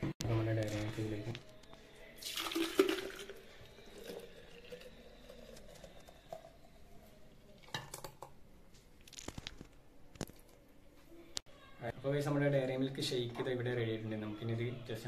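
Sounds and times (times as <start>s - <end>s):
thick liquid pouring into jug: 2.2s - 6.9s.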